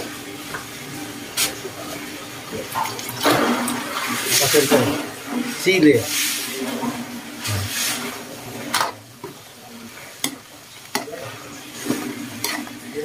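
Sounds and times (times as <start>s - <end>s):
ladle swishing in stew: 3.4s - 8.3s, 10.9s - 13.0s.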